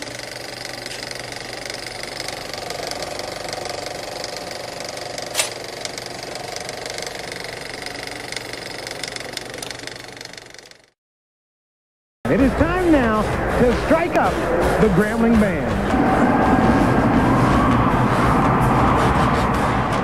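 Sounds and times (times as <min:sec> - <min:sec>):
film projector clattering: 0:00.0 - 0:10.9.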